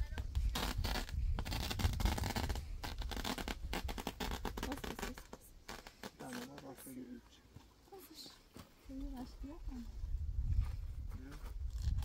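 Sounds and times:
scratching and rustling: 0:00.1 - 0:07.0, 0:10.5 - 0:12.0.

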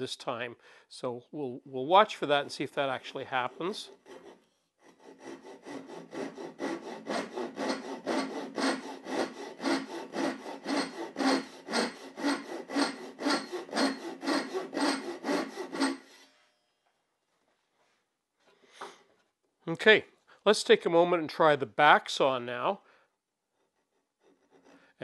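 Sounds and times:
pull saw rasping through wood: 0:03.3 - 0:16.3.

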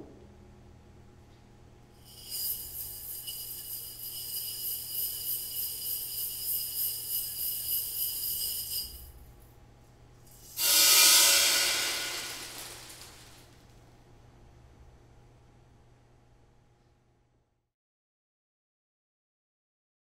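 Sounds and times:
seeds rattling in glass flask: 0:02.0 - 0:09.3, 0:10.3 - 0:13.5
sudden rush of noise: 0:10.6 - 0:13.5.

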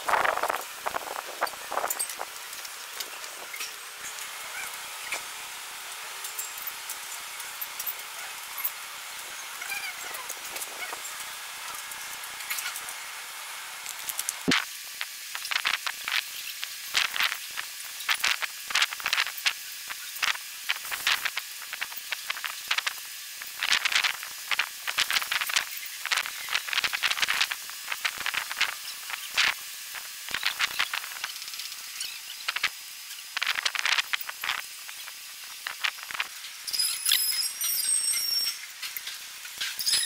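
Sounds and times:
high squeaks: 0:36.6 - 0:38.8, 0:39.6 - 0:40.0.

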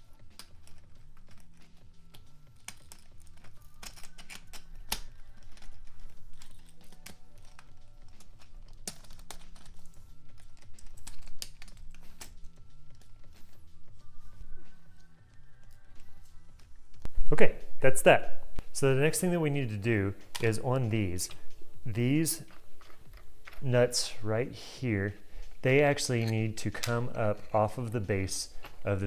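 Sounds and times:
background music: 0:00.0 - 0:29.0
clicks and clacks of parts: 0:00.2 - 0:13.5, 0:25.4 - 0:29.0.

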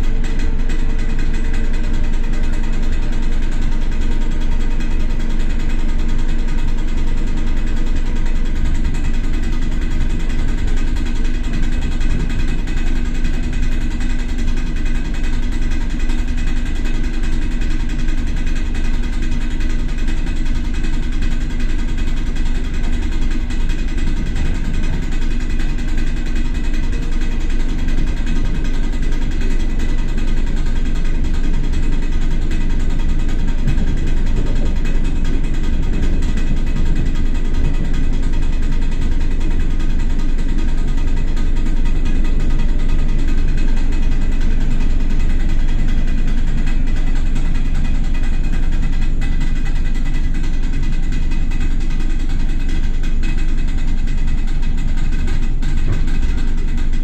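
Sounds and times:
constant electric hum: 0:00.0 - 0:57.0
train rumbling from inside carriage: 0:33.0 - 0:39.0.

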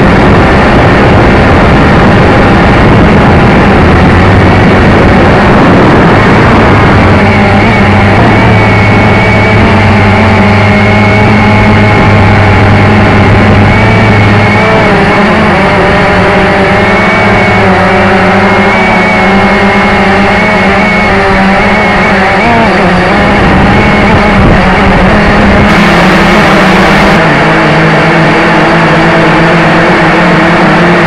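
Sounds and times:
model aircraft motor drone: 0:00.0 - 0:31.0.

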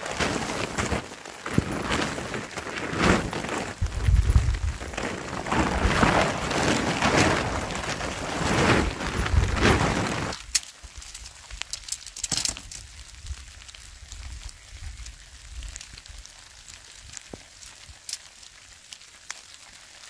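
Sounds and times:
tent fabric rustling and flapping: 0:00.0 - 0:12.8
tent poles clicking together: 0:00.0 - 0:12.9.

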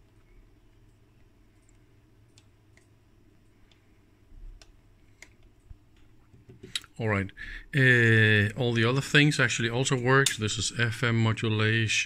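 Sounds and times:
faint clicks: 0:00.0 - 0:03.9
steady low hum: 0:00.0 - 0:12.0.

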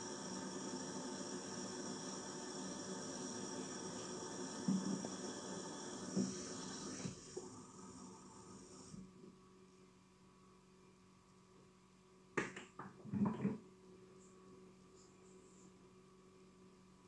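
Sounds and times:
hiss: 0:00.0 - 0:09.1
faint room hum: 0:00.0 - 0:17.0.

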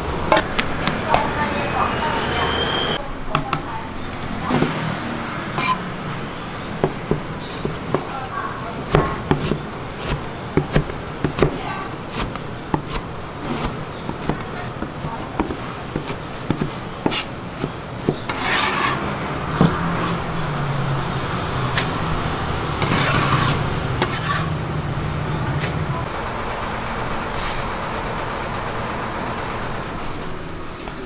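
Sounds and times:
cleaver scraping noodles: 0:06.4 - 0:20.2, 0:22.8 - 0:24.6.

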